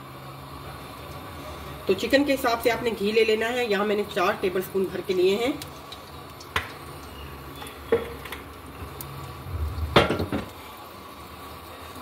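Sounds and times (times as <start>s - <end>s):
low steady hum: 8.6s - 10.5s.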